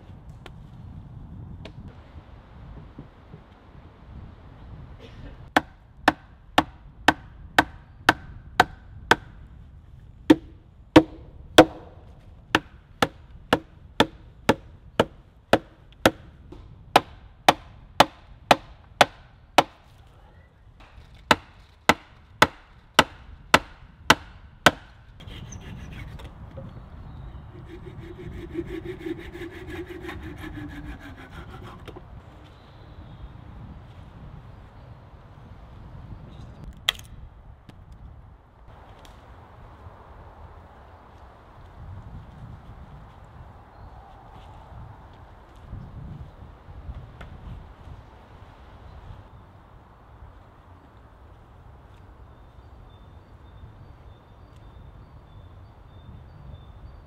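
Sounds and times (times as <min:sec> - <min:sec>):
hammer knocking wooden pegs: 0:10.3 - 0:12.0, 0:21.3 - 0:25.0
wood scraping: 0:27.4 - 0:32.5.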